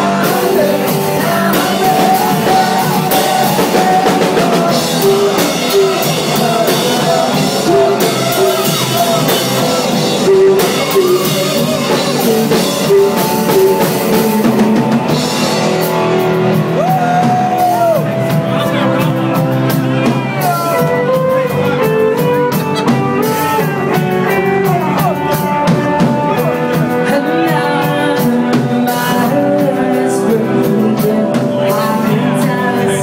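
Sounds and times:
woman singing lead: 0.0 - 15.4, 22.6 - 33.0
drum kit: 0.0 - 33.0
electric guitar: 0.0 - 33.0.

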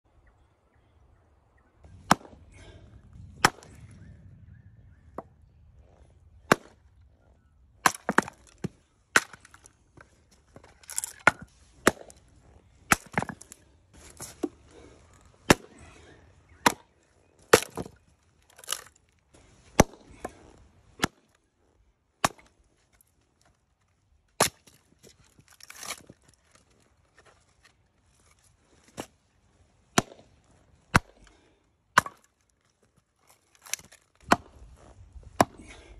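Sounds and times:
maul chopping wood: 2.0 - 2.7, 3.4 - 3.8, 6.4 - 6.8, 7.8 - 9.7, 10.6 - 12.2, 12.9 - 14.6, 15.4 - 15.8, 16.5 - 18.0, 18.6 - 18.9, 19.7 - 20.4, 21.0 - 21.4, 22.2 - 22.6, 24.4 - 26.6, 29.9 - 30.3, 30.9 - 32.4, 33.5 - 34.6, 35.3 - 35.8.

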